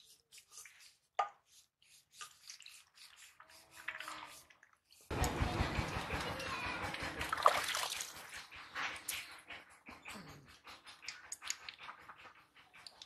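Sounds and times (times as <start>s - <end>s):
wet hands rubbing: 0.0s - 5.1s, 10.5s - 13.0s.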